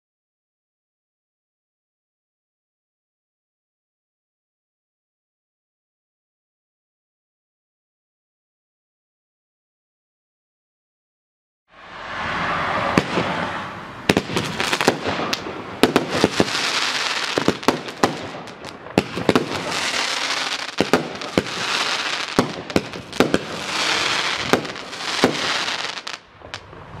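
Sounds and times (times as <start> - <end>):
firework crackling: 12.6 - 27.0
firework bangs: 12.7 - 27.0.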